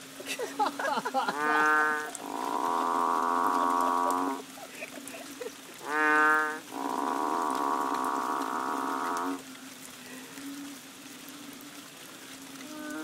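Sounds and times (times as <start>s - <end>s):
frogs mooing calls: 1.3s - 4.6s, 5.8s - 9.5s.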